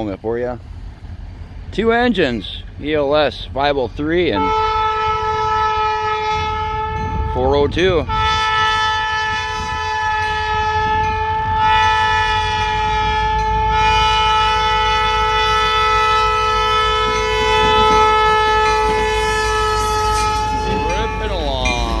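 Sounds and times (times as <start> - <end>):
diesel locomotive rumble: 0.0 - 22.0
locomotive air horn blast: 4.3 - 7.3, 8.0 - 22.0.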